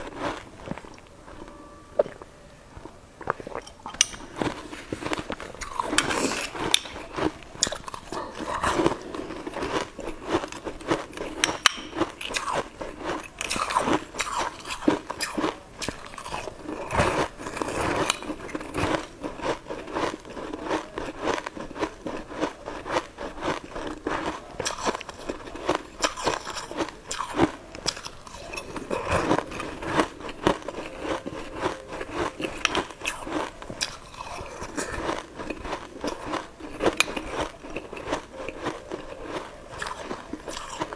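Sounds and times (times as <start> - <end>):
person chewing: 0.0 - 40.9
crisp crunching of frozen sweets: 2.8 - 40.9.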